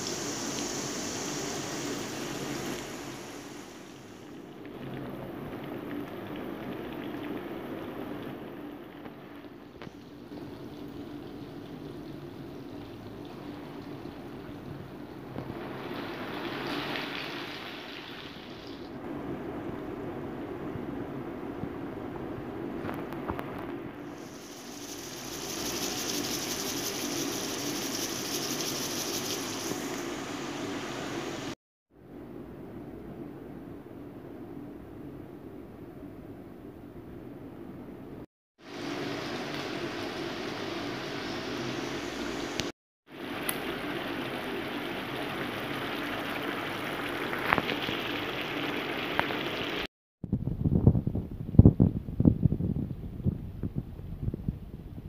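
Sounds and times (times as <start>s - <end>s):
squid bubbling and sizzling in wok: 0.0s - 31.6s, 38.6s - 49.9s.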